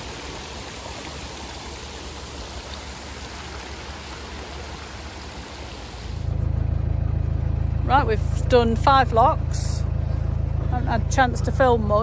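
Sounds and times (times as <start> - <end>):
water pouring and splashing: 0.0 - 6.3.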